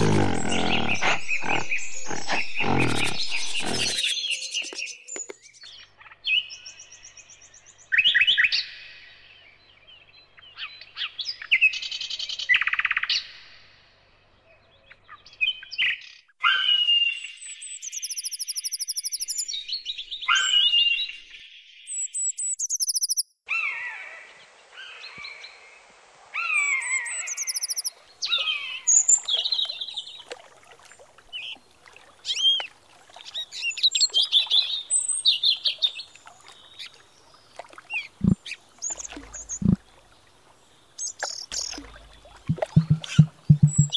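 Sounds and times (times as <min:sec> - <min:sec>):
birds chirping and calling: 0:00.0 - 0:05.4, 0:38.0 - 0:40.0, 0:41.0 - 0:43.9.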